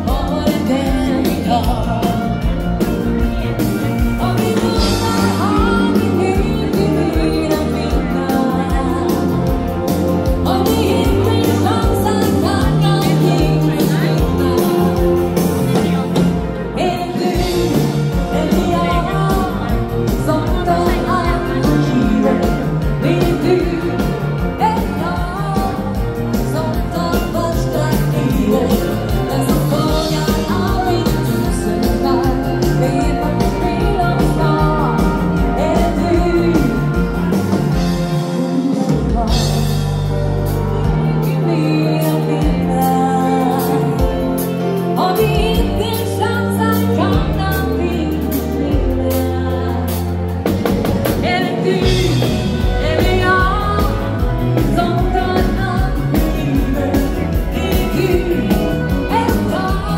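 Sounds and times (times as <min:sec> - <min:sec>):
live dance band music: 0:00.0 - 0:59.9
person singing: 0:00.0 - 0:59.9.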